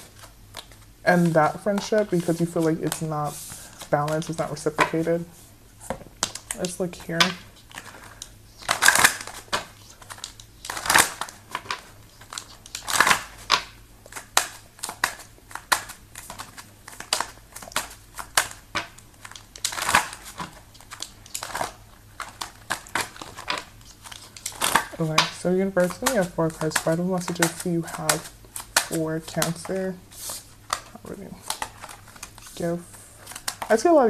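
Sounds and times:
cards clicking while shuffled: 0:00.0 - 0:05.3, 0:05.9 - 0:34.0
cards rustling: 0:00.0 - 0:34.0.

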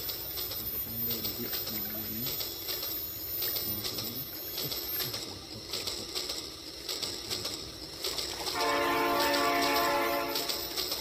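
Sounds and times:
toy train horn: 0:08.4 - 0:11.0.

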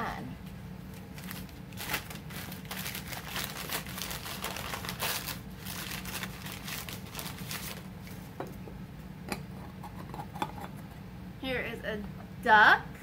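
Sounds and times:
packaging crinkling and rustling: 0:00.9 - 0:08.3.

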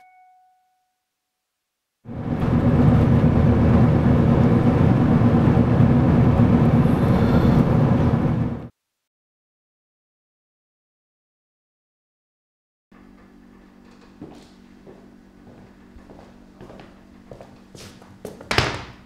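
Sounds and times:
moving vehicle noise from inside: 0:02.1 - 0:08.7.

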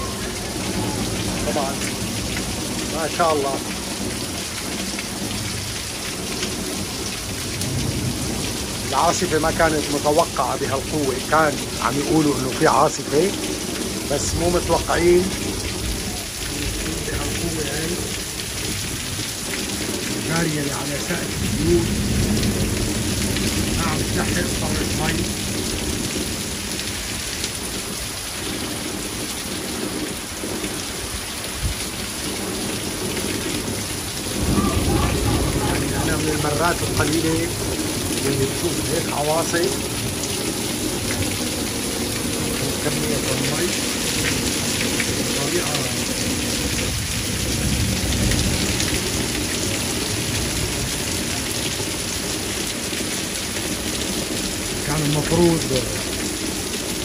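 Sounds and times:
heavy rain pounding: 0:00.0 - 0:57.0
low thunder rumble: 0:13.3 - 0:39.1, 0:39.7 - 0:52.6.

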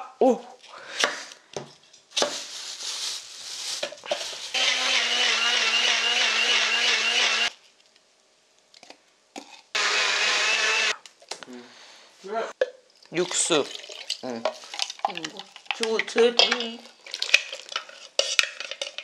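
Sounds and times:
blender motor grinding: 0:04.5 - 0:07.6, 0:09.8 - 0:11.0.

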